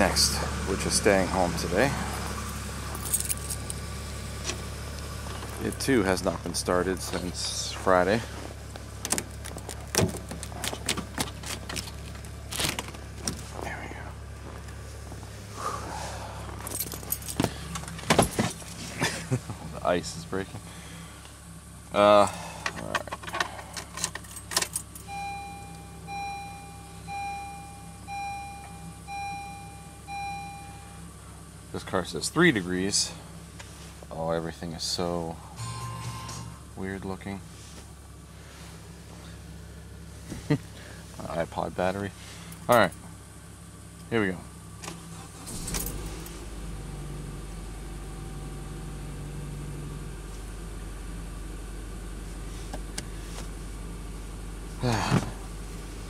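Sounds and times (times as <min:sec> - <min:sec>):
car engine starting and idling: 0:00.0 - 0:56.0
dashboard warning chime: 0:25.0 - 0:31.1, 0:35.5 - 0:36.8.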